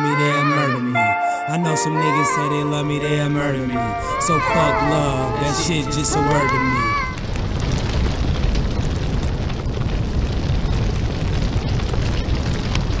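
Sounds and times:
fire crackling: 3.9 - 13.0
fire rumbling: 4.0 - 13.0.

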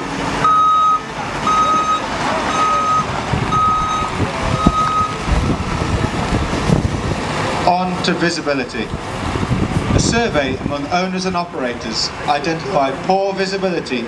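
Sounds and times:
excavator engines running: 0.0 - 14.0
reversing alarm beeping: 0.4 - 5.8.

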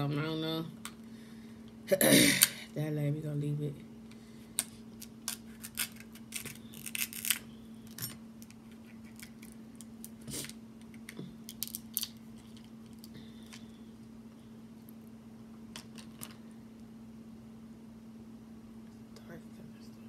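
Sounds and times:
faint steady hum: 0.0 - 20.0
crab shell cracking: 5.0 - 7.4.

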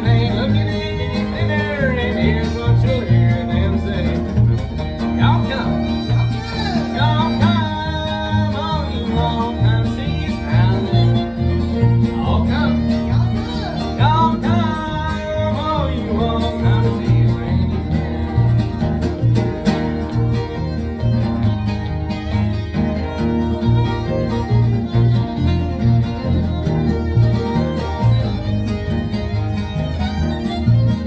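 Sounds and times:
man singing: 0.0 - 19.2
acoustic guitar strumming: 0.0 - 31.0.

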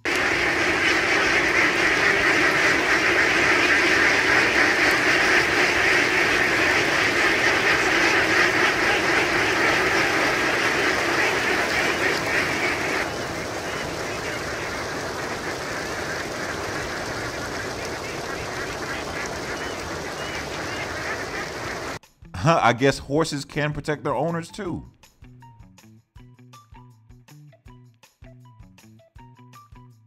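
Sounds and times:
flock of ducks quacking: 0.0 - 22.0.

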